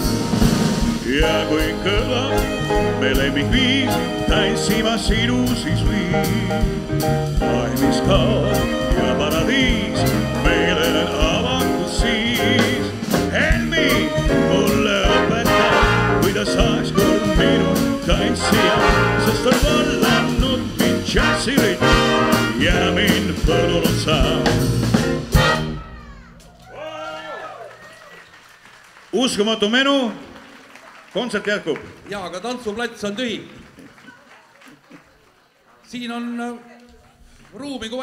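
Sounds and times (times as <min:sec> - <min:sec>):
big band playing swing: 0:00.0 - 0:26.7.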